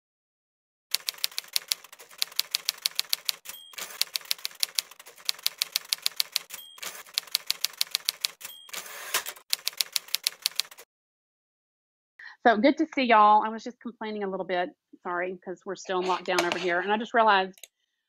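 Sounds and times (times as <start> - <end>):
typewriter carriage return: 0.9 - 10.8
typewriter bell ding: 3.1 - 4.3, 6.0 - 9.2.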